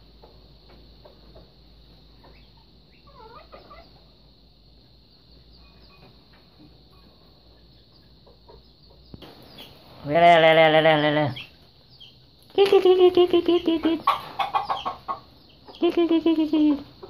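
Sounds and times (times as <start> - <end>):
chickens clucking: 0.1 - 17.0
bird chirps: 2.1 - 4.1, 5.1 - 9.9, 11.3 - 16.8.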